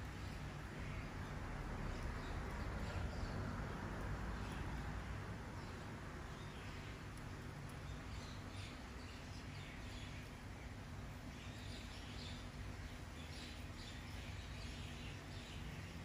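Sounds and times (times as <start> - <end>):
low steady background hum: 0.0 - 16.0.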